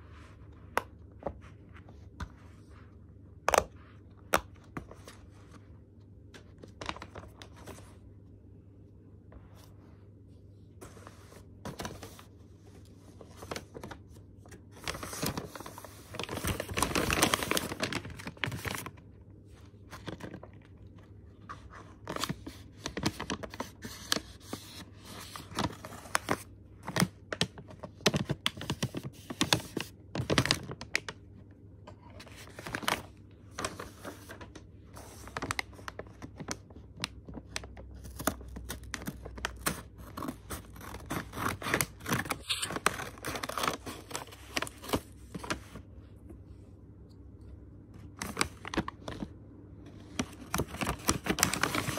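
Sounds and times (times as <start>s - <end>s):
paper envelope rustling: 6.3s - 7.9s, 14.7s - 19.0s, 21.4s - 31.1s, 32.2s - 45.8s, 48.1s - 49.2s, 50.1s - 51.9s.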